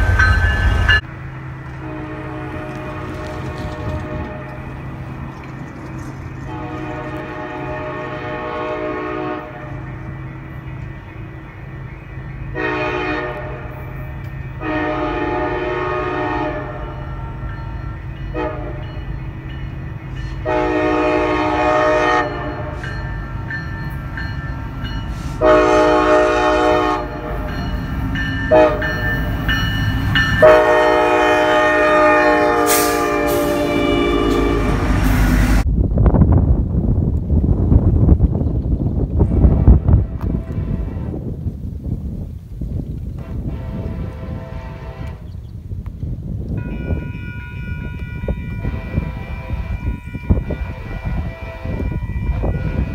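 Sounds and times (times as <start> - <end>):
diesel locomotive rumble: 0.0 - 52.9
locomotive air horn blasts: 1.8 - 4.7, 6.4 - 10.8, 12.5 - 17.5, 18.3 - 19.0, 20.2 - 23.1, 24.9 - 35.6, 39.3 - 41.2, 43.2 - 45.3, 46.6 - 52.9.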